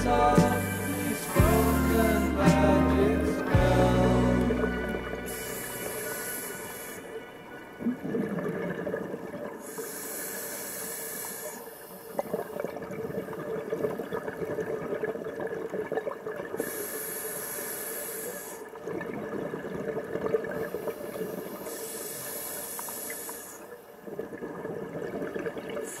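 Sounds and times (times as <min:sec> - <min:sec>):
regulator hissing inhales: 0:05.2 - 0:07.1, 0:09.6 - 0:12.2, 0:16.6 - 0:18.6, 0:20.8 - 0:23.7.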